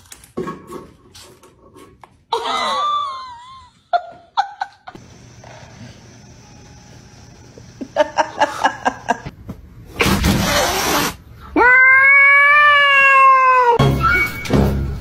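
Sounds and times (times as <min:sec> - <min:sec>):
cat crying: 0:11.6 - 0:13.8.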